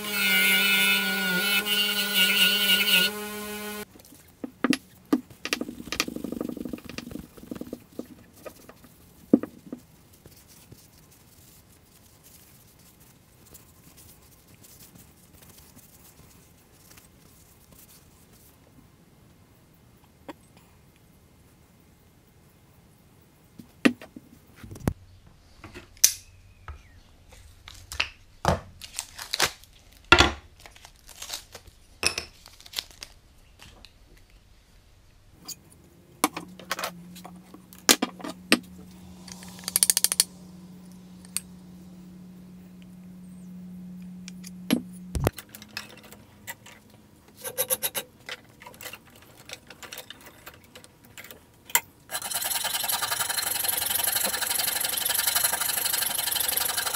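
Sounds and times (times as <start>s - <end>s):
low steady hum: 18.5s - 56.9s
metal tools clinking on wood: 45.3s - 51.5s.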